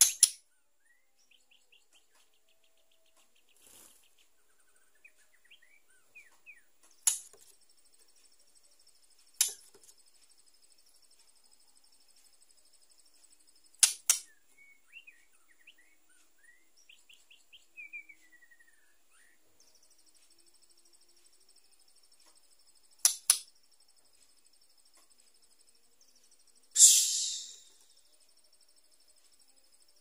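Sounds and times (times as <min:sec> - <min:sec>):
sharp loud clicks: 0:13.8 - 0:14.3, 0:23.0 - 0:23.5
bird soft chirps: 0:14.3 - 0:21.6, 0:26.1 - 0:30.0
falling whistled note: 0:26.8 - 0:27.8
steady high buzz: 0:26.8 - 0:28.1.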